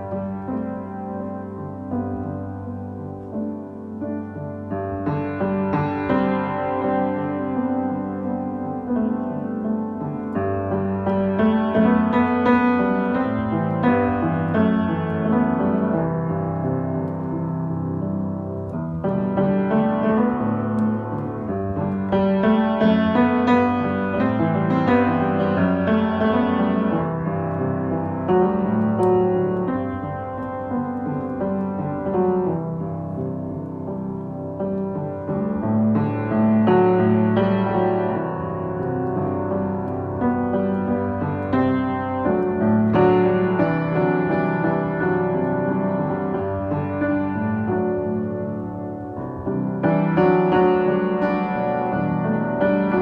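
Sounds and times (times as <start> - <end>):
piano music: 0.0 - 53.0.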